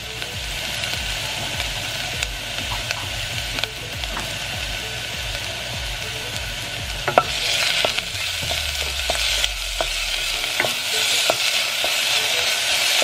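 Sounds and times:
garlic sizzling in hot oil: 0.0s - 13.0s
wooden spoon knocking on pan: 1.5s - 4.8s, 5.8s - 12.6s.

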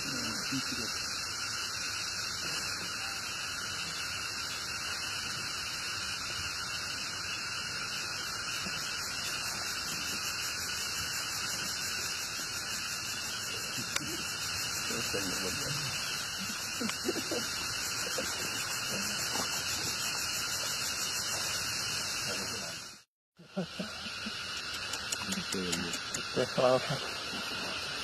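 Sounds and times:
steady even hiss: 0.0s - 28.0s.

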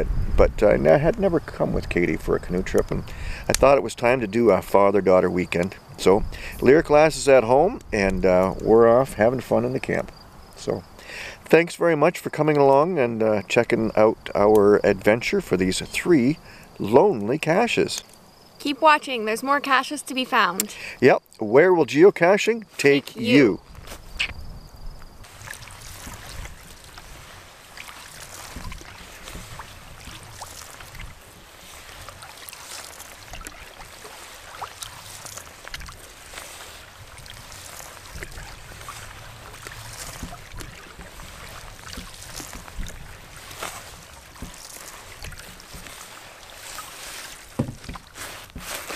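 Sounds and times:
wind on microphone: 0.0s - 3.7s, 5.5s - 10.9s, 23.1s - 32.4s, 33.0s - 48.7s
paddle strokes splashing water: 25.2s - 48.9s.

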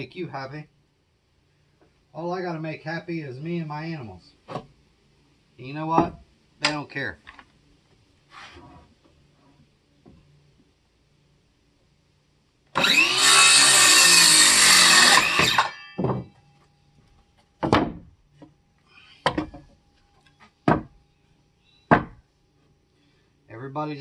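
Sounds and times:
circular saw cutting wood: 12.8s - 16.0s
sharp knocks: 15.4s - 16.4s, 17.6s - 18.1s, 20.6s - 21.0s, 21.9s - 22.2s.

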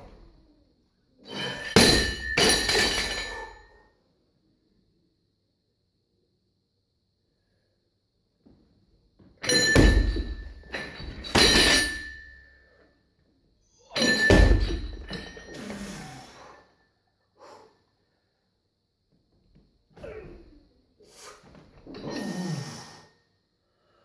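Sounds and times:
barbell thudding: 1.5s - 3.5s, 9.4s - 12.4s, 14.0s - 15.5s
metal bar and plates rattling: 9.4s - 12.4s, 13.9s - 15.6s.

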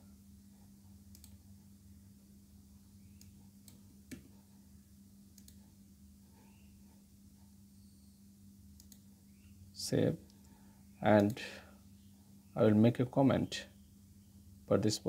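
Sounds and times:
low steady hum: 0.0s - 15.0s
computer mouse clicks: 1.1s - 1.4s, 3.1s - 4.4s, 5.3s - 5.8s, 8.7s - 9.1s.

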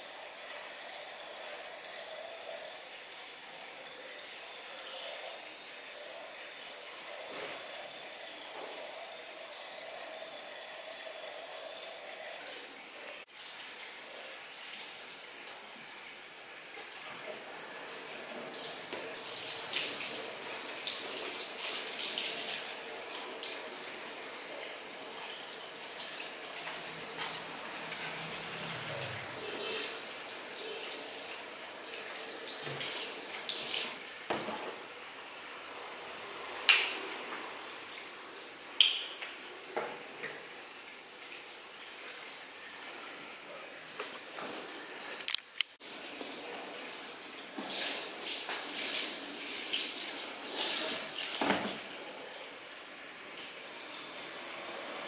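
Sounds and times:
water running into basin: 0.0s - 45.1s
shower sprayer spraying hair: 47.5s - 51.7s.

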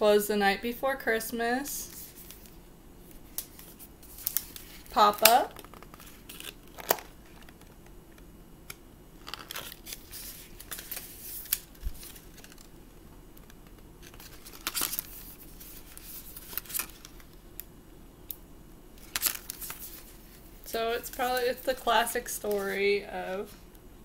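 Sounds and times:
card pages rustling and scraping: 1.9s - 7.9s, 9.2s - 12.8s, 13.4s - 17.4s, 19.0s - 23.6s.

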